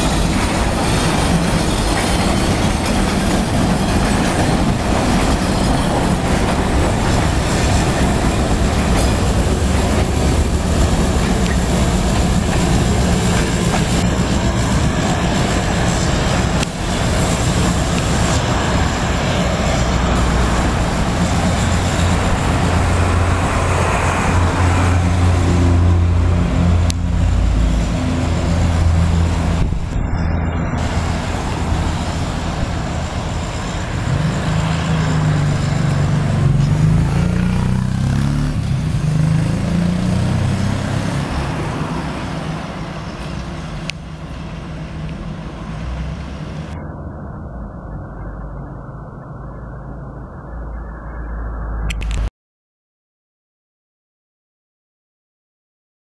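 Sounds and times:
car engine and tyre noise: 0:00.0 - 0:52.3
deep engine drone: 0:19.1 - 0:40.3, 0:46.6 - 0:52.3.

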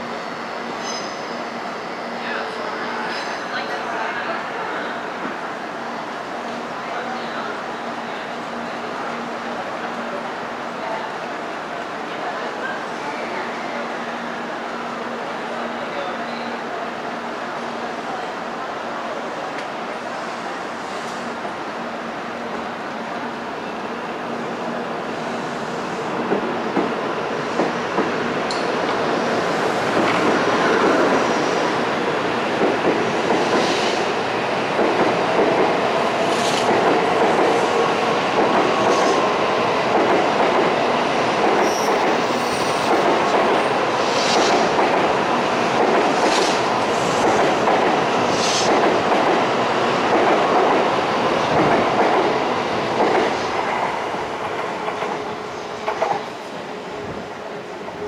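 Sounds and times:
train wheels rushing on rail: 0:00.0 - 0:58.0.

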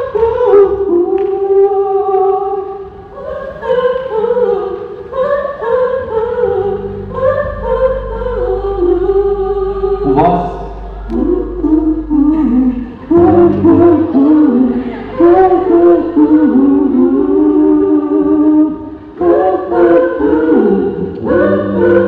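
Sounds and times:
women's vocal group singing: 0:00.0 - 0:22.0
low steady hum: 0:06.1 - 0:19.2.

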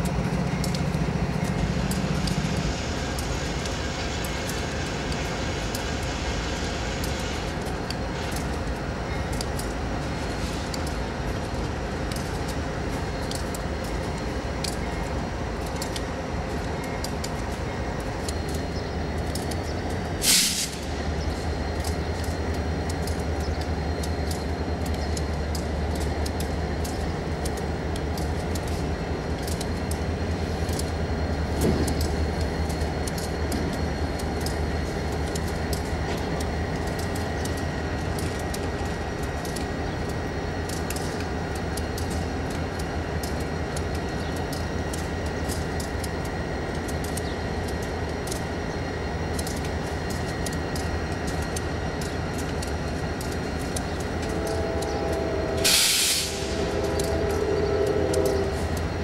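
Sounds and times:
locomotive engine rumble: 0:00.0 - 0:59.0
loud burst of noise: 0:54.8 - 0:58.6.

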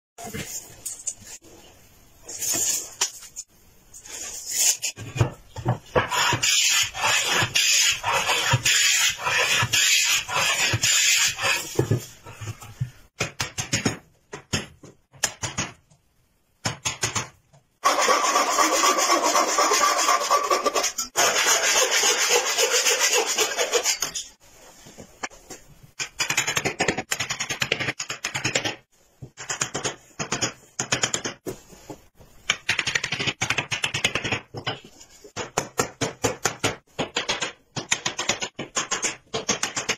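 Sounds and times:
scraping and cutting wood: 0:17.8 - 0:24.4.

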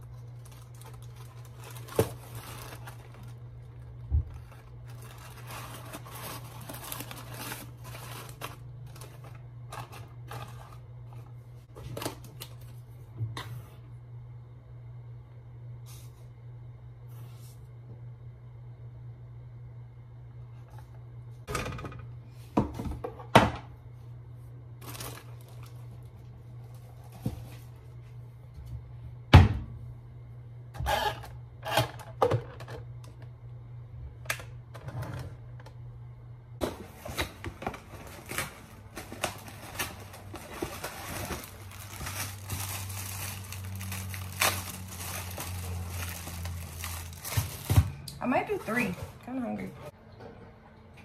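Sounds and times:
plastic packaging crinkling: 0:00.0 - 0:12.8, 0:24.8 - 0:26.1, 0:36.9 - 0:48.0
low steady hum: 0:00.0 - 0:51.0.

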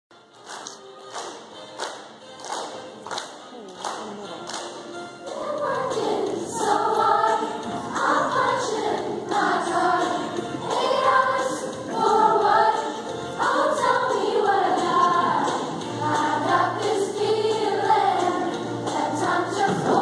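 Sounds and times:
girls' chorus singing: 0:05.2 - 0:20.0.

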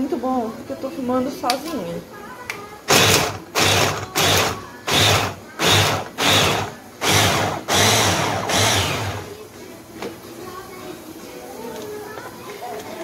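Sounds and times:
electric hand blender pulsing: 0:02.9 - 0:09.3.

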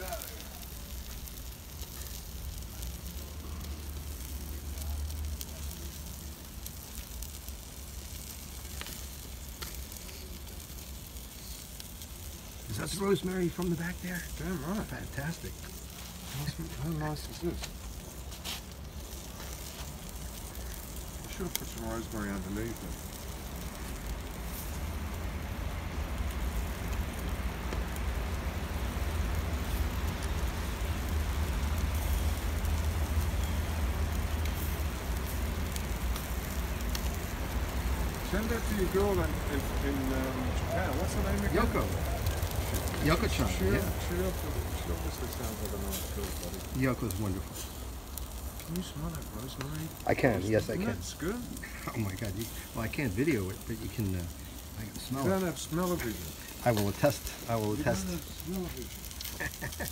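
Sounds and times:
faint crackles: 0:00.0 - 0:59.9
ham sizzling on a grill: 0:00.0 - 0:59.9
steady low rumble: 0:00.0 - 0:59.9
low rumble: 0:22.8 - 0:46.8.

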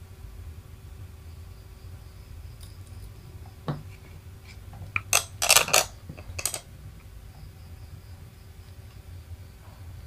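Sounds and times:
low steady hum: 0:00.0 - 0:10.0
small hard objects clicking: 0:04.8 - 0:06.6.

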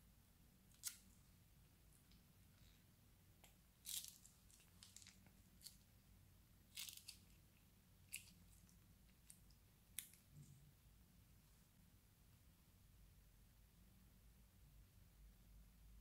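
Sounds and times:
plastic bag crinkling: 0:03.8 - 0:05.8
sticky slime crackling and popping: 0:03.8 - 0:05.8, 0:06.7 - 0:07.4.

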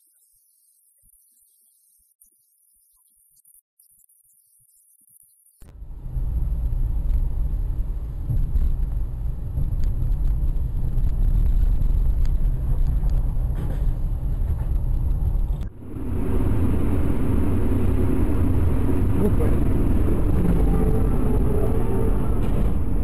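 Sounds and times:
car engine and road rumble: 0:05.6 - 0:23.0.

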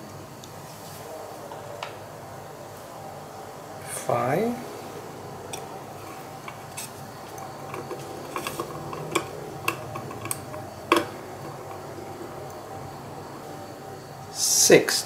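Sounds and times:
screwdriver clicking on metal: 0:05.6 - 0:11.8.

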